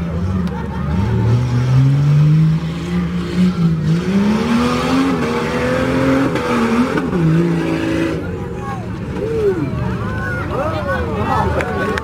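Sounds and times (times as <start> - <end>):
car engine revving hard: 0.0 - 8.3.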